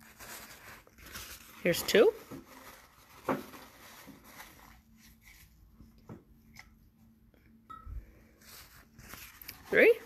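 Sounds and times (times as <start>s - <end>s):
paper towel rustling: 0.0s - 5.9s, 8.4s - 10.0s.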